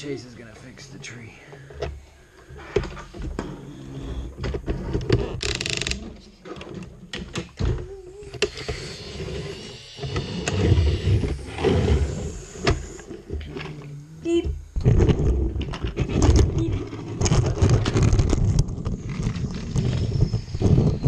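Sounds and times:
plastic toys clicking and rubbing: 14.8s - 21.0s.

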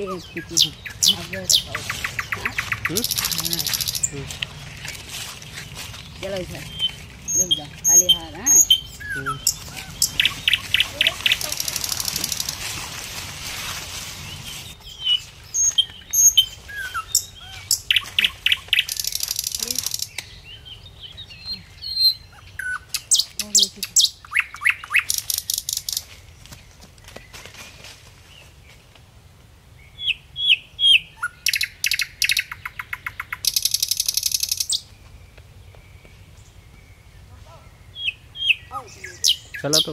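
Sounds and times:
birds chirping: 0.0s - 29.0s, 29.7s - 39.9s.

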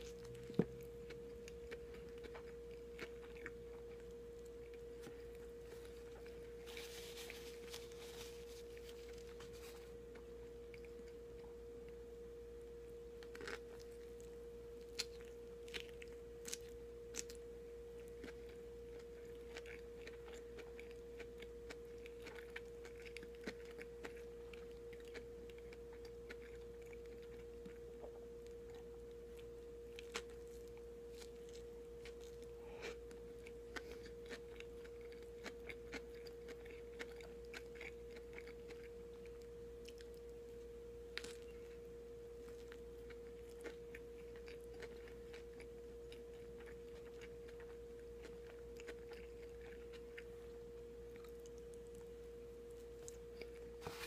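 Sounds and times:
chewing sandwich: 0.0s - 12.0s, 13.2s - 54.0s
faint hum: 0.0s - 54.0s
paper napkin rustling: 6.6s - 9.9s.

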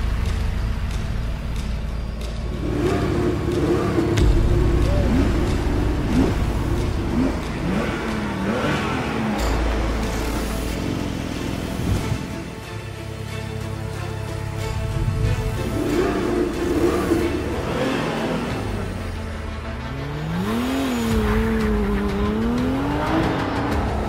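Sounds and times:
low steady drone: 0.0s - 24.0s
car engine revving: 2.4s - 12.5s, 14.9s - 24.0s.

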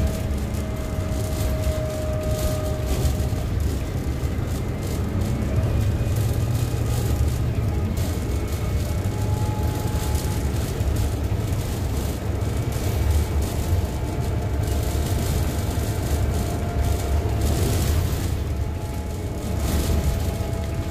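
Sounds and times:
bus engine drone: 0.0s - 20.9s
road and wind noise: 0.0s - 20.9s.

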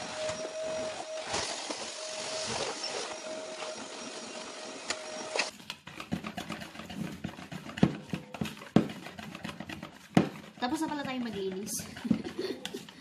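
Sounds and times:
vacuum cleaner whine: 0.0s - 5.5s.

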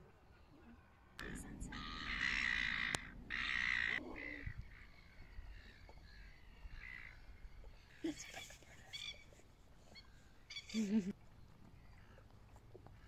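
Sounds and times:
bird giving harsh calls: 1.2s - 4.8s.

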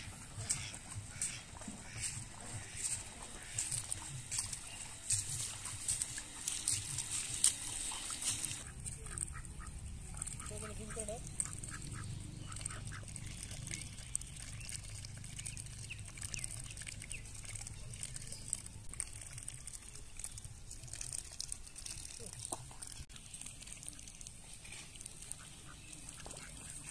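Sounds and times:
ducks quacking: 0.0s - 13.5s, 25.2s - 26.9s.

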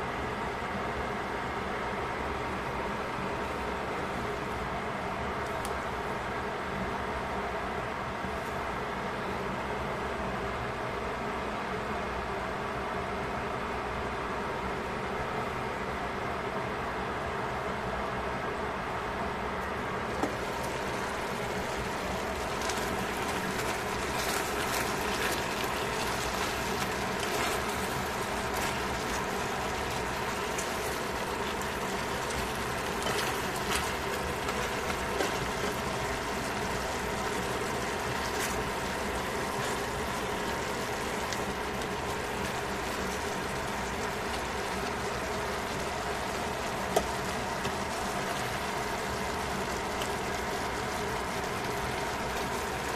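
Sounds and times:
steady hum: 0.0s - 52.9s
crackles: 20.1s - 52.9s
food sizzling in a metal pot: 20.1s - 52.9s.

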